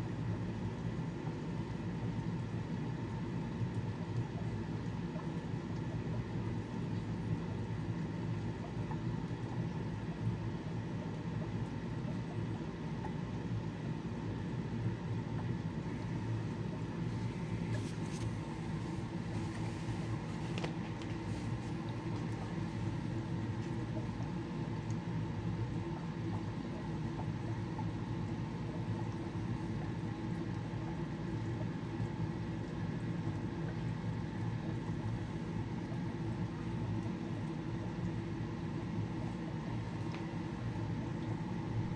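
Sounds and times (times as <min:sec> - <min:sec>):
aquarium equipment hum: 0:00.0 - 0:41.9
hiss of moving air and water: 0:15.9 - 0:24.6.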